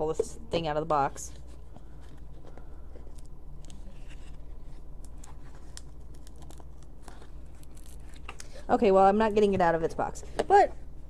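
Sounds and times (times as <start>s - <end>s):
steady low hum: 0.0s - 11.0s
small packaging clicks: 5.0s - 8.5s.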